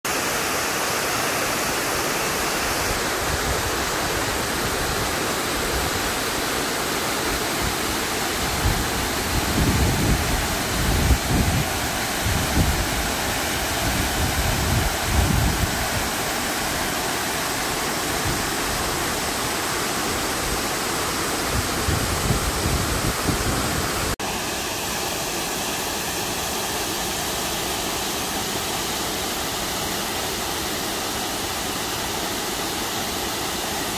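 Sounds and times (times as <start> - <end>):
waterfall rushing: 0.0 - 33.9
wind buffeting microphone: 8.5 - 16.2, 21.4 - 24.2.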